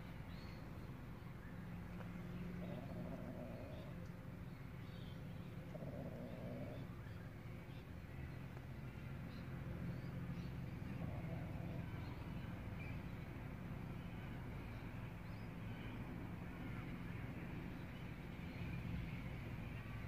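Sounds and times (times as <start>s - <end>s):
faint bird chirps: 0.0s - 8.6s.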